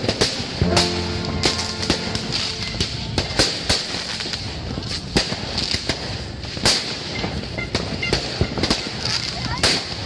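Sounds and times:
background din: 0.0s - 5.4s
fireworks and firecrackers banging: 0.0s - 10.0s.

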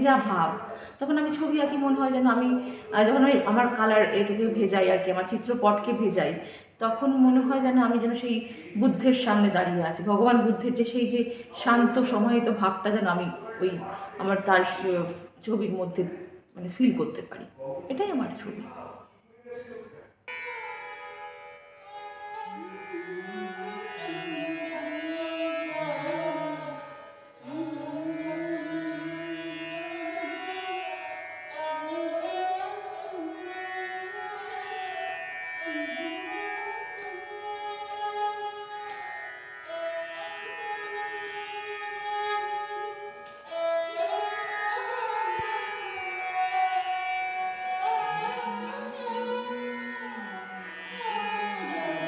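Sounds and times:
indian classical-style instrumental melody: 0.0s - 18.9s, 19.6s - 52.0s
steady drone: 22.0s - 30.0s, 44.6s - 52.0s.

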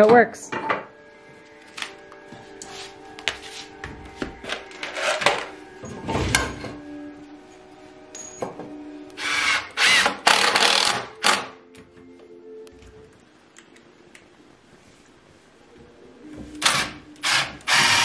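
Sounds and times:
cordless drill driving screws: 9.2s - 11.4s, 17.2s - 18.0s.

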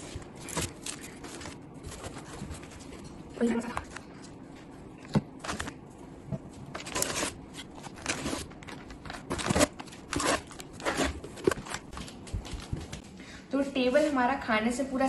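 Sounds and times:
plastic containers crinkling: 0.0s - 4.3s, 5.0s - 5.8s, 6.4s - 12.7s.

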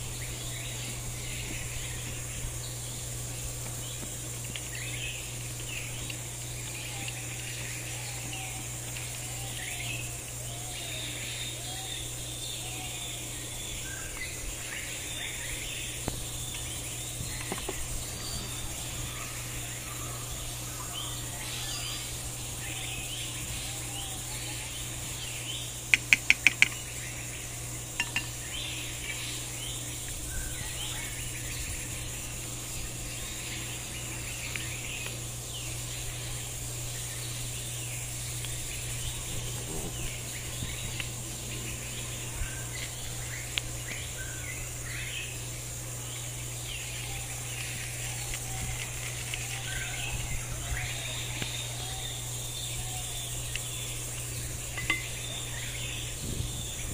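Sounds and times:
birds chirping: 0.0s - 56.9s
insects buzzing: 0.0s - 56.9s
metal spoon clinking ceramic bowl: 54.8s - 55.1s.

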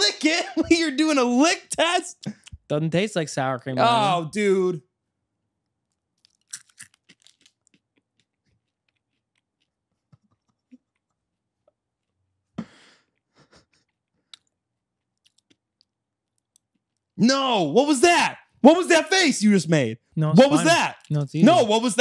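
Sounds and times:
person chewing crunchy food: 6.2s - 12.2s, 15.0s - 17.0s.

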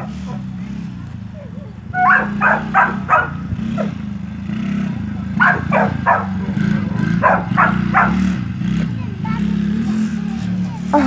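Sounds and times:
dog barking: 0.0s - 0.5s, 1.4s - 4.0s, 5.3s - 8.4s
small engine droning: 0.0s - 11.0s.

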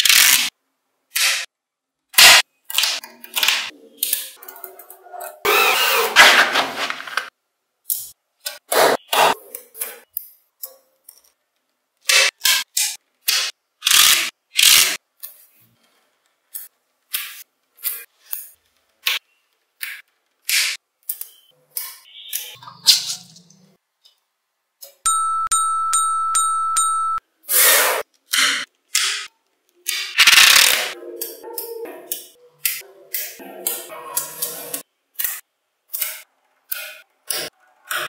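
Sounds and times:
electronic tone with ticks: 25.1s - 27.2s.

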